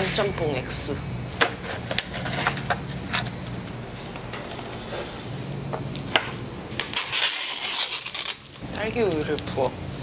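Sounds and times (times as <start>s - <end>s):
steady low hum: 0.0s - 10.0s
packaging crinkling: 6.8s - 8.6s.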